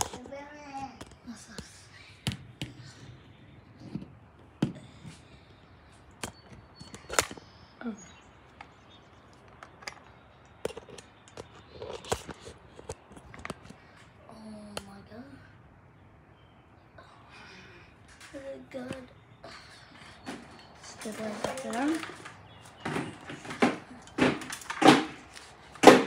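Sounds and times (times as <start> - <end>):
sharp clicks and knocks: 20.0 - 26.0.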